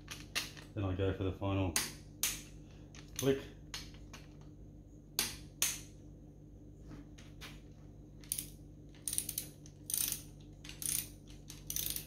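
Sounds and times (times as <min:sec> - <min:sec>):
torque wrench ratchet clicks: 0:08.3 - 0:12.0.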